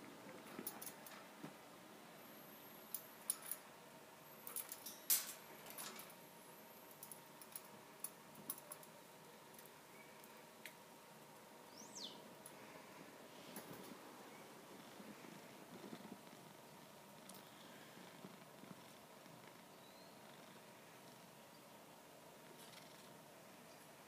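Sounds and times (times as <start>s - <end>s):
high downward bird chirp: 11.7s - 12.2s.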